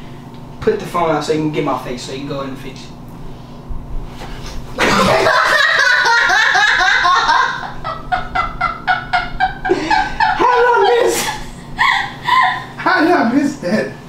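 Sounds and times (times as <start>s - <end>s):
woman screaming and shrieking: 11.8s - 12.7s.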